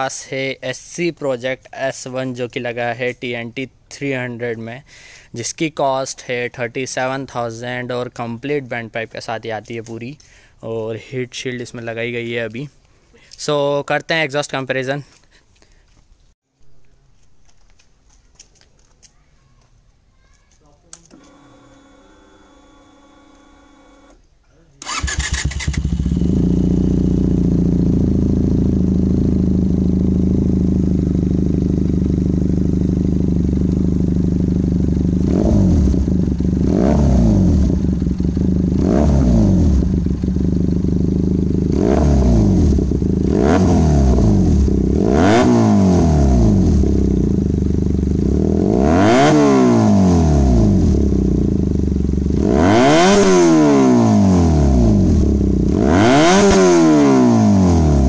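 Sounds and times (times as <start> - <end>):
motorcycle engine revving: 24.8 - 58.0.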